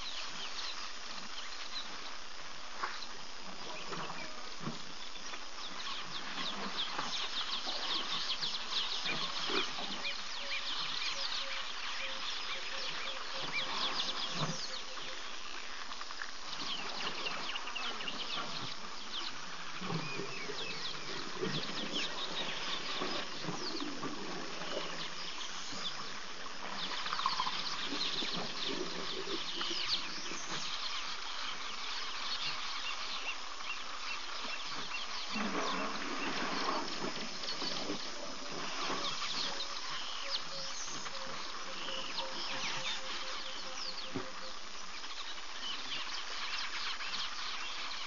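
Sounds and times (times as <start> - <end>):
insects: 0.0 - 48.0
birds chirping and calling: 4.9 - 15.6, 26.8 - 48.0.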